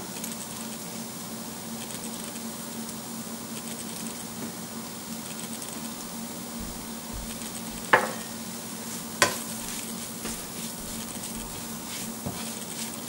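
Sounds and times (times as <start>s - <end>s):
spatula knocking against pan: 7.8s - 8.3s, 9.2s - 9.6s
onions sizzling in oil: 7.8s - 13.0s
wooden spatula scraping pan: 8.0s - 13.0s.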